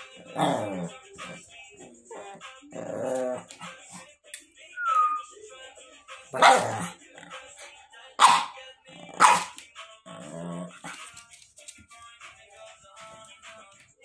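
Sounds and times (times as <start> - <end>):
dog barking: 6.4 - 7.0, 8.2 - 8.6, 9.2 - 9.6.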